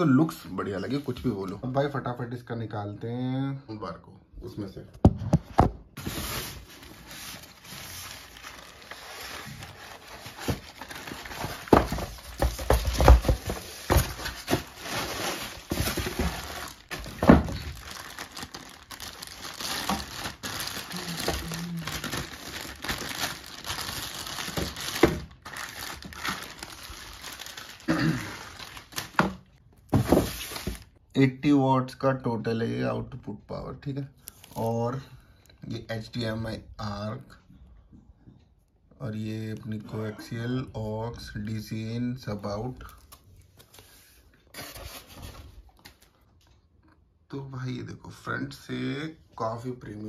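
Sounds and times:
plastic wrap crinkling: 0:06.0 - 0:31.0
packaging knocks and thunks: 0:09.4 - 0:21.5, 0:22.1 - 0:27.5, 0:28.9 - 0:30.9.

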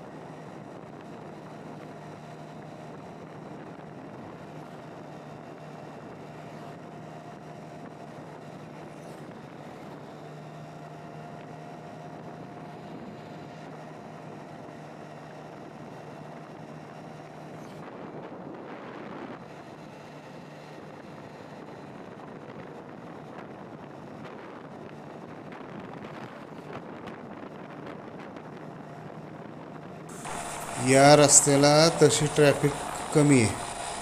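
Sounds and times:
road and wind noise: 0:00.0 - 0:30.1
vehicle engine drone: 0:30.1 - 0:34.0.

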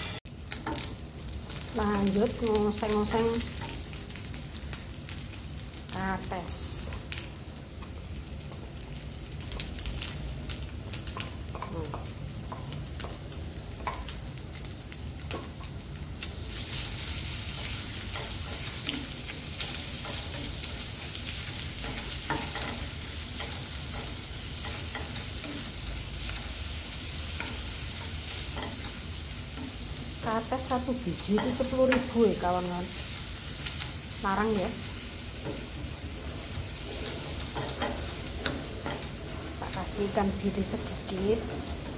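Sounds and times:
stir-frying sizzle: 0:00.0 - 0:41.9
wooden spatula scraping a pan: 0:34.7 - 0:41.9.

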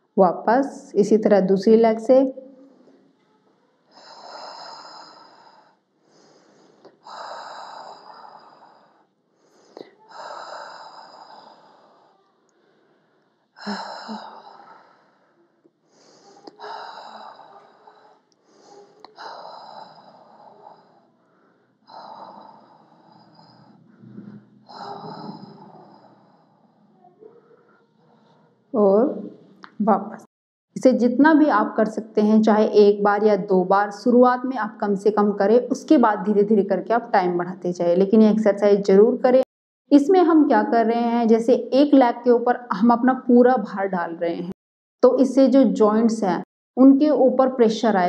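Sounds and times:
woman breathing deeply: 0:03.9 - 0:26.9.

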